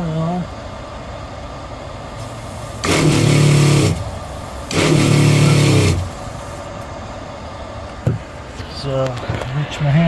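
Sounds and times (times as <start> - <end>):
water pump running: 2.5 - 6.6.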